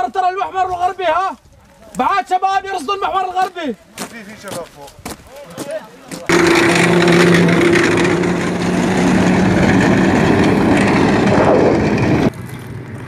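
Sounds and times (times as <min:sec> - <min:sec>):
vehicle engine running: 0:06.3 - 0:13.0.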